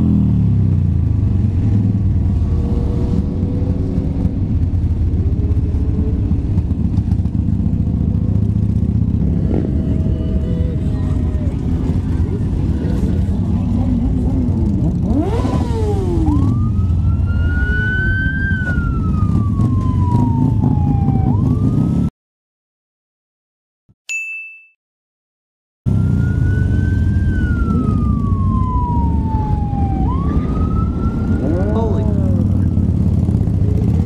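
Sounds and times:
motorcycles idling: 0.6 - 17.7, 27.2 - 34.0
siren wailing: 15.1 - 22.1, 25.9 - 33.0.

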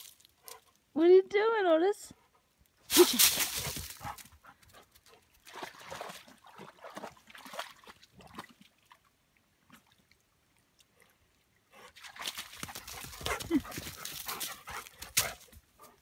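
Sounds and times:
trickling stream: 2.7 - 16.0
dog splashing in water: 5.4 - 9.0, 11.9 - 15.4.

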